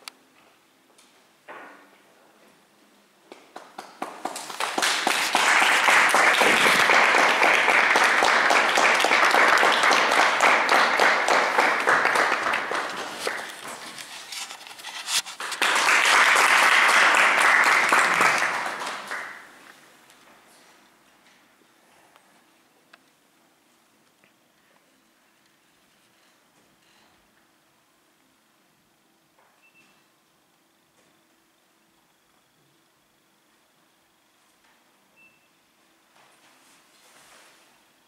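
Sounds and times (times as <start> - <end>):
audience applauding: 3.6 - 19.6.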